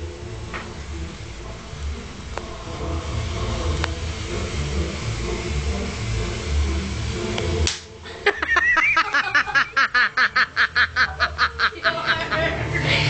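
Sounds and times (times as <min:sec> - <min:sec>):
sharp slap: 0:07.6 - 0:08.0
girl laughing creepily: 0:08.0 - 0:12.7.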